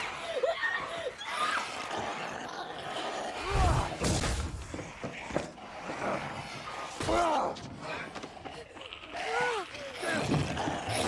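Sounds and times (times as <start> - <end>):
thuds and crashes: 3.8 - 4.9.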